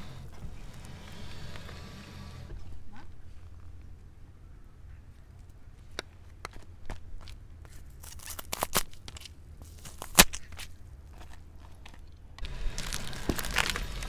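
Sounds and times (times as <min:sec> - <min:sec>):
pears crunching under tyre: 0:05.4 - 0:14.0
tyre rolling with crackling: 0:11.1 - 0:14.0.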